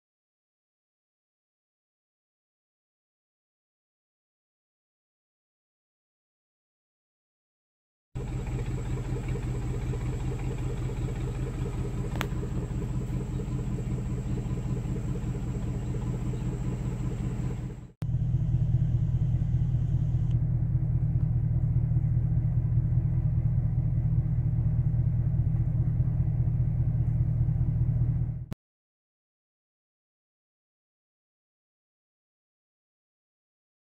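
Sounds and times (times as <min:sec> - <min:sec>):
car engine idling: 0:08.2 - 0:28.6.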